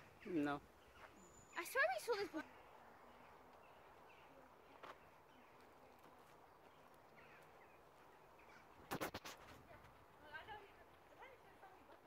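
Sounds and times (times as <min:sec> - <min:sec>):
faint bird chirps: 0:00.0 - 0:08.9.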